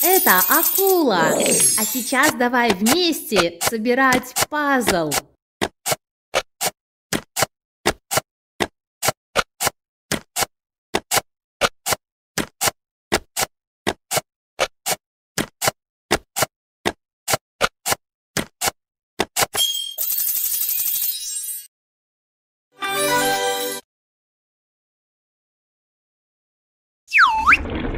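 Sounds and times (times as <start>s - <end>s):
puzzle pieces clicking: 0.0s - 4.5s.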